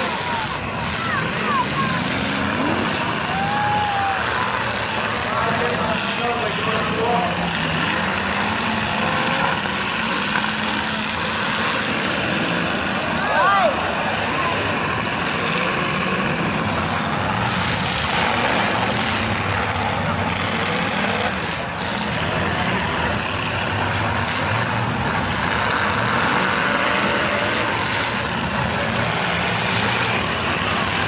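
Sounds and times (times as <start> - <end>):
car engines revving: 0.0 - 31.0
crowd noise: 0.0 - 31.0.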